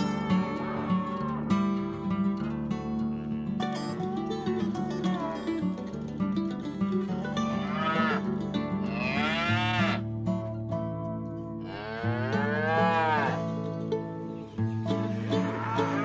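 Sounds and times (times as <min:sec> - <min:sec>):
cattle mooing: 0:00.0 - 0:01.9, 0:02.8 - 0:03.9, 0:07.4 - 0:10.0, 0:11.6 - 0:13.6, 0:15.0 - 0:16.0
background music: 0:00.0 - 0:16.0.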